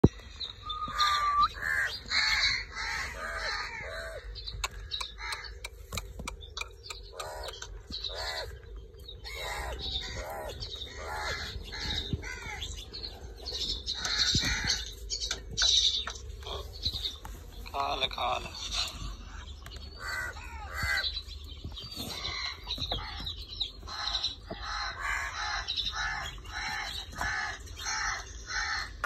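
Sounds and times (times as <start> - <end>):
parakeet calling: 0.5 - 5.6, 6.2 - 12.9.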